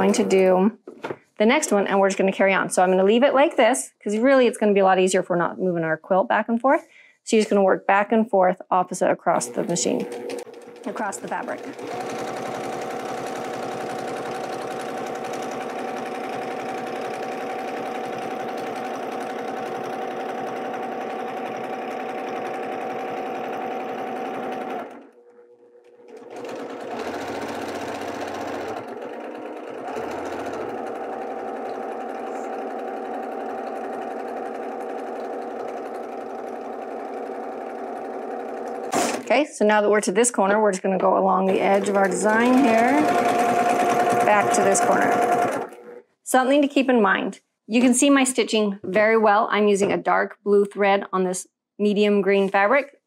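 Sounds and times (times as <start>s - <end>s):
sewing machine running: 0.0s - 0.6s, 9.3s - 39.3s, 41.5s - 46.0s.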